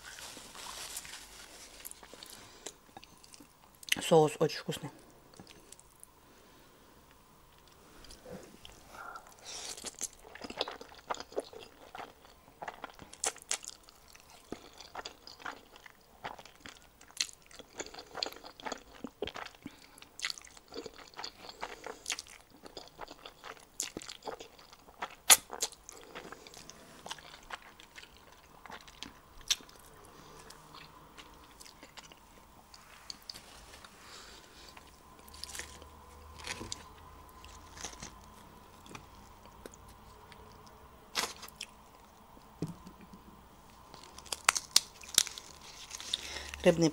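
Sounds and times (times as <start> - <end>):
chewing and slurping noodles: 8.0 - 33.5.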